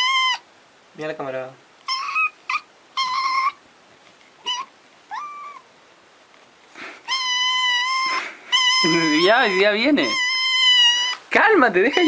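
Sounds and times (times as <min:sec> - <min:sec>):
kitten meowing: 0:00.0 - 0:00.4, 0:01.8 - 0:03.6, 0:04.4 - 0:05.7, 0:07.0 - 0:11.3.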